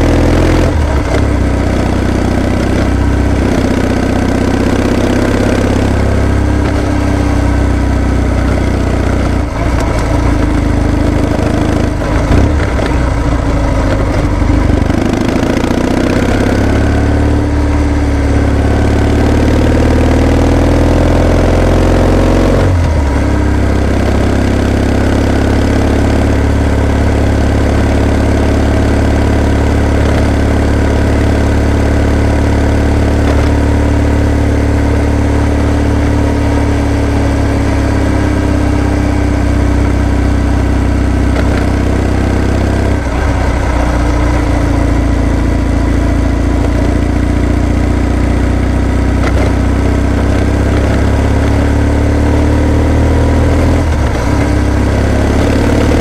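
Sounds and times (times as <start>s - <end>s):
motorcycle engine accelerating: 0.0s - 56.0s
gear change: 42.8s - 46.8s.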